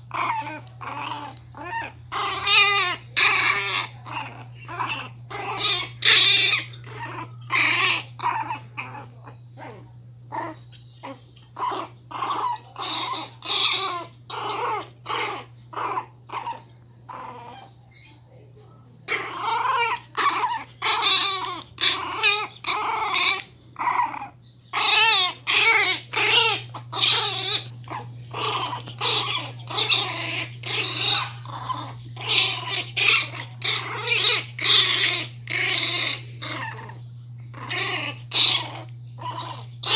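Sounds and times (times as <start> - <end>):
puppies growling in play: 0.0 - 39.9.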